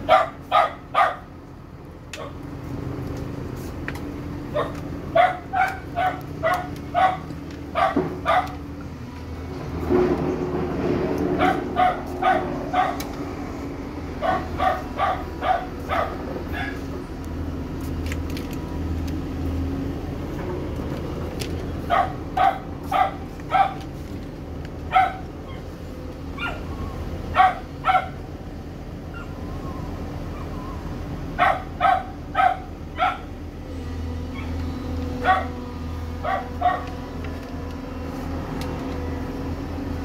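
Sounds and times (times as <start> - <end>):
dog barking: 0.0 - 1.3, 4.5 - 8.6, 11.4 - 13.0, 14.2 - 16.8, 21.9 - 23.8, 24.9 - 25.6, 26.4 - 26.6, 27.3 - 28.2, 31.4 - 33.3, 35.2 - 35.6, 36.2 - 36.9.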